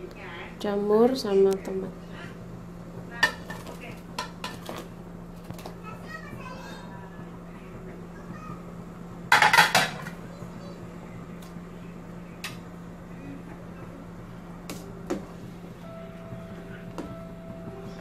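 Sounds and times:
steady low hum: 0.0s - 18.0s
utensils clinking on metal pot: 9.3s - 10.1s.

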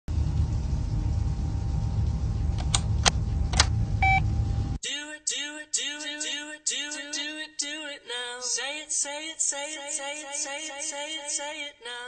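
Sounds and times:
steady low rumble: 0.1s - 4.8s
short electronic beep: 4.0s - 4.3s
song with singing: 4.8s - 12.0s.

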